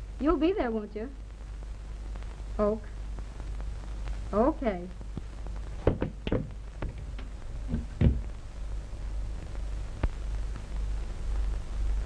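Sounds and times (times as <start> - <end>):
film soundtrack hum and hiss: 0.0 - 12.0
soft knocks on a desk: 5.8 - 8.3.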